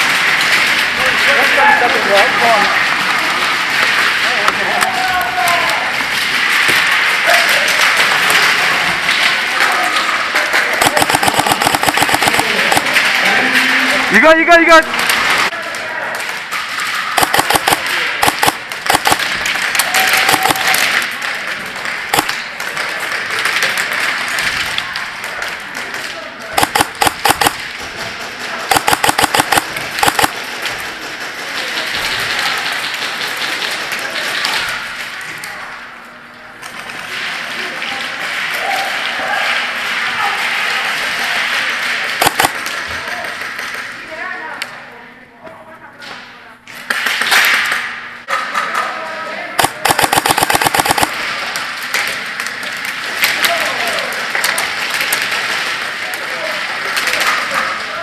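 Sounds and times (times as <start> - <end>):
indoor arena din: 0.0 - 58.0
airsoft gunfire clicks and pops: 10.8 - 13.0, 17.2 - 19.3, 20.1 - 20.8, 22.1 - 22.4, 26.6 - 27.6, 28.7 - 30.4, 42.2 - 42.7, 49.6 - 51.2.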